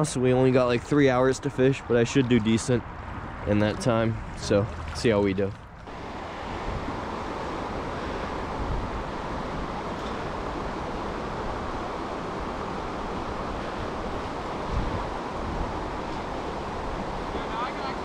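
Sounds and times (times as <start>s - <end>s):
wind rumble on microphone: 2.2s - 18.0s
river water rushing: 5.7s - 18.0s.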